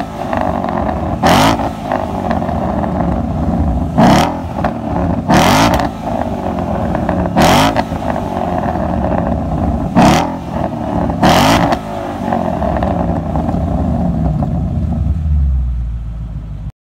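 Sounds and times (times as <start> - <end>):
car engine revving and idling: 0.0 - 16.7.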